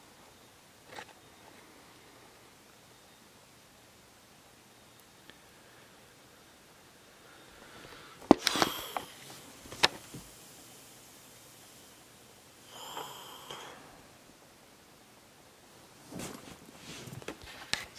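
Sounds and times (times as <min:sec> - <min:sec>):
rustle against microphone: 0:16.0 - 0:17.9.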